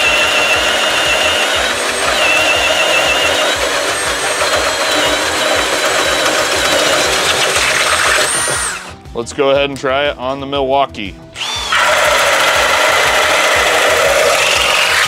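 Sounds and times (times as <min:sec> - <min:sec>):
drill bit grinding wood: 0:00.0 - 0:09.0, 0:11.4 - 0:15.0
drill motor whine: 0:00.0 - 0:09.0, 0:11.4 - 0:15.0.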